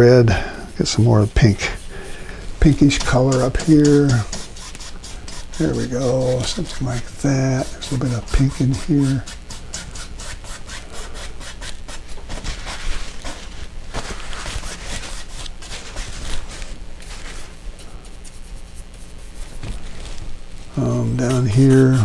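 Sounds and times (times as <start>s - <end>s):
brush scrubbing paint on canvas: 0.8s - 22.0s.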